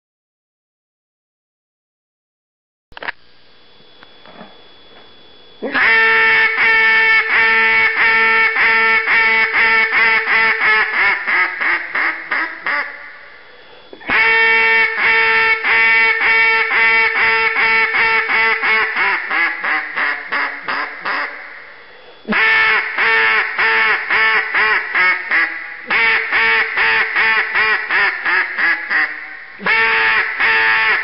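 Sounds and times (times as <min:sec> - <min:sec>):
duck call quacking: 0:05.6 - 0:13.2, 0:14.0 - 0:21.6, 0:22.3 - 0:31.0.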